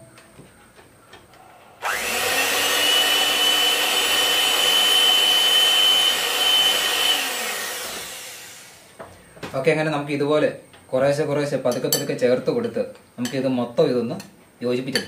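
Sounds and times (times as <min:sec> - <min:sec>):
electric hand mixer whining: 0:01.8 - 0:09.0.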